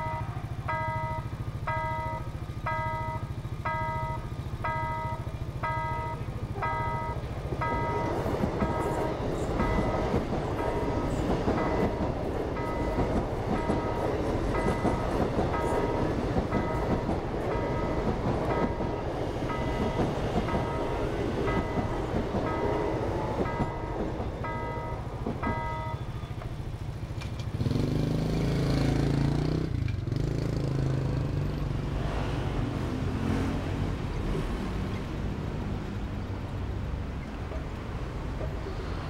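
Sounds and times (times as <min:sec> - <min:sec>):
level crossing warning bell: 0:00.0 - 0:27.0
electric train rumbling past: 0:00.0 - 0:39.0
vehicle engines pulling away: 0:26.0 - 0:36.9.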